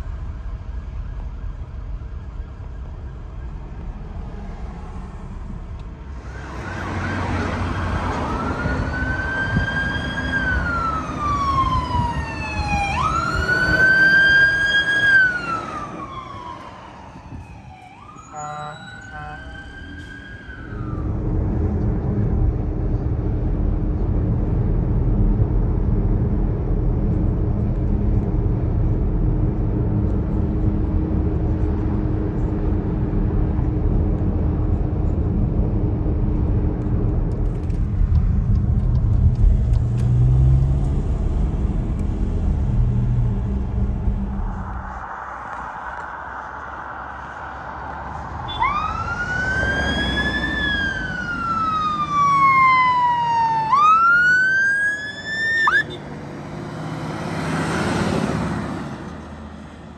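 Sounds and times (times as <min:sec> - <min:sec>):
emergency vehicle siren wailing: 0:00.0 - 0:22.8, 0:39.3 - 0:59.3
car road and engine noise: 0:00.0 - 0:59.9.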